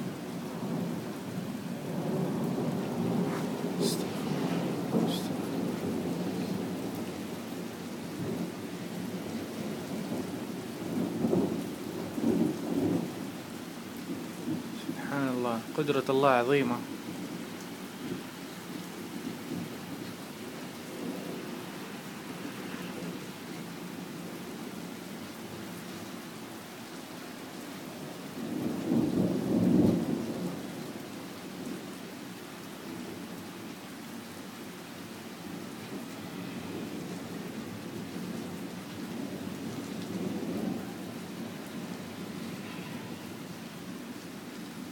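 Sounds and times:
steady rain: 0.0s - 44.9s
thunder rumbling: 0.5s - 13.4s.

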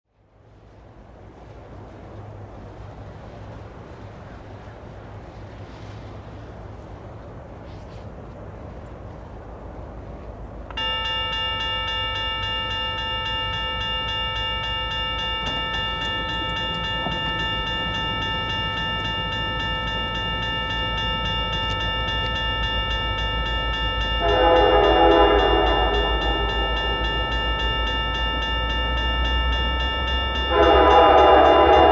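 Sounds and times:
crossing bell dinging: 10.7s - 31.9s
locomotive horn: 10.8s - 22.5s, 24.0s - 27.4s, 30.3s - 31.9s.

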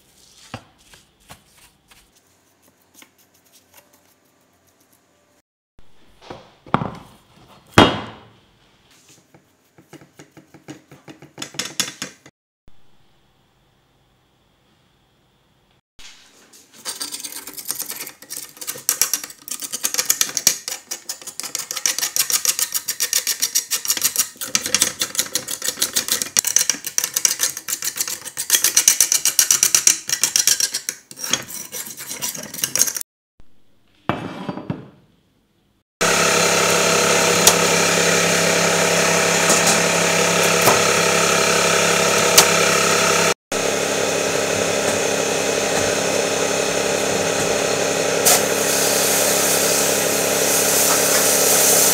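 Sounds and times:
metal parts scraping and clinking: 16.8s - 33.0s
electric motor humming: 36.0s - 51.9s.

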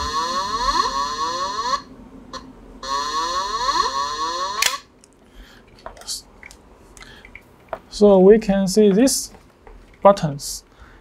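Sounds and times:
rising electronic alarm tones: 0.0s - 4.8s.

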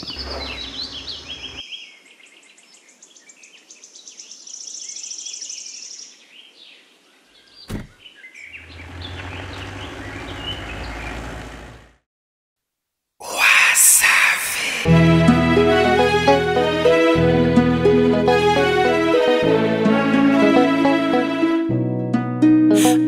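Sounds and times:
birds chirping: 0.0s - 12.0s
car engine humming: 8.5s - 12.0s.

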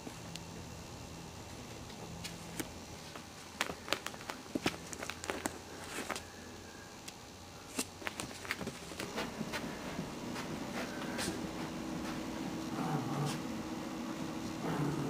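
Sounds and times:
faint steady hum: 0.0s - 15.0s
puppy claws clicking on pads: 3.6s - 6.2s.

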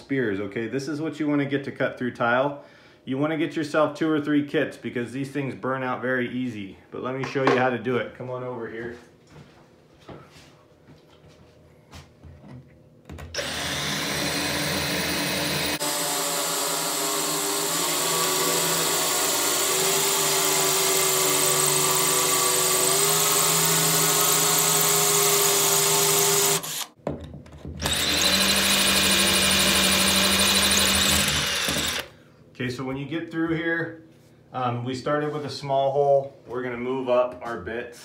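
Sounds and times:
cordless drill boring through tile: 13.4s - 27.0s, 27.8s - 32.1s.

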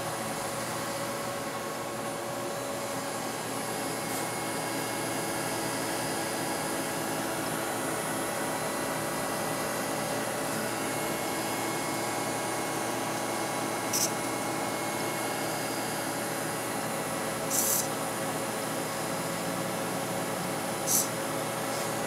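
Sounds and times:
steady hissing with humming: 0.0s - 22.0s
brief high-pitched hiss: 20.9s - 21.1s.

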